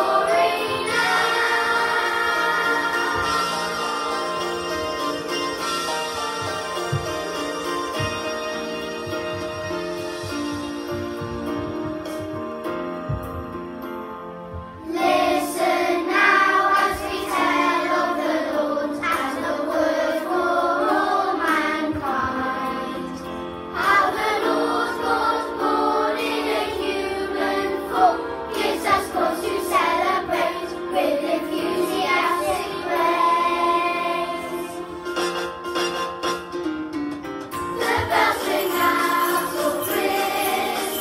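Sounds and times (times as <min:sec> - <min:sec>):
children's choir singing: 0:00.0 - 0:09.1, 0:14.8 - 0:35.0, 0:37.7 - 0:41.0
instrumental accompaniment: 0:00.0 - 0:41.0.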